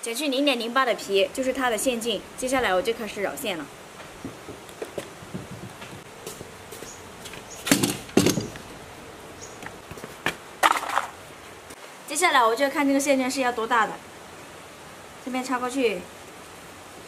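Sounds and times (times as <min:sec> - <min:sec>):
faint steady hiss: 0:00.0 - 0:17.0
knocks on wooden table: 0:04.2 - 0:06.0.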